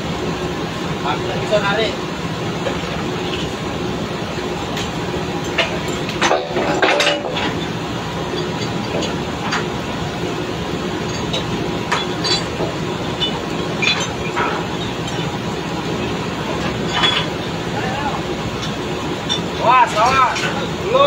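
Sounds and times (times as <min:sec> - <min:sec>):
machinery droning: 0:00.0 - 0:21.0
metallic clanks of pipe tools: 0:04.7 - 0:09.8, 0:11.0 - 0:15.4, 0:16.0 - 0:17.5, 0:18.6 - 0:20.7.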